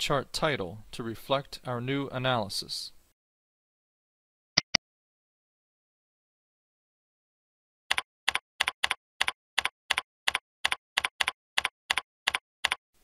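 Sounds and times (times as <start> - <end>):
computer keyboard keystrokes: 7.9 - 12.8.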